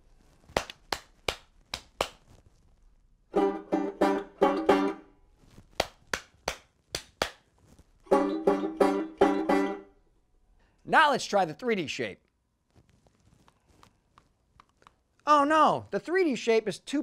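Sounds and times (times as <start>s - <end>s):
hand claps: 0.5s - 2.3s, 5.8s - 7.5s
strummed banjo chords: 3.3s - 5.1s, 8.1s - 10.0s.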